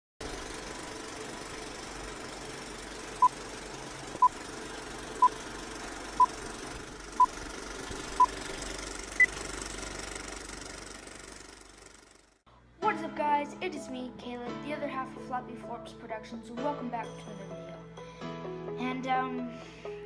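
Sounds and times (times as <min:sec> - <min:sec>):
film projector rattling: 0:00.2 - 0:12.4.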